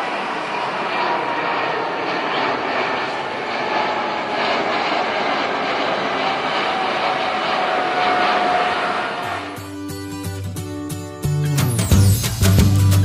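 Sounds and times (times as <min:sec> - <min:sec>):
jet engines roaring: 0:00.0 - 0:10.1
faint engine whine: 0:00.0 - 0:10.6.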